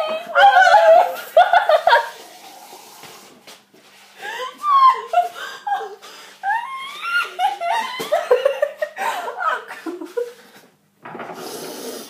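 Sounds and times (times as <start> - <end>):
girls laughing: 0.0 - 2.2, 4.2 - 10.4.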